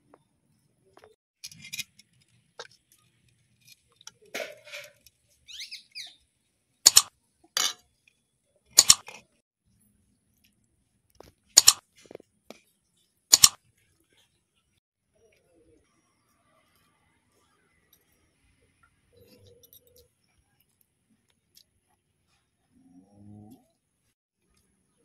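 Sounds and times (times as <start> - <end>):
mouse click sound effects: 13.3 - 13.6.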